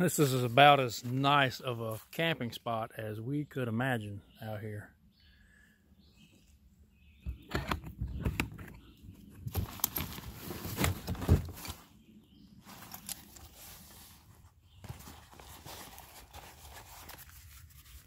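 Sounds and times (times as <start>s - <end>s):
rustling: 9.5s - 12.0s, 12.6s - 18.0s.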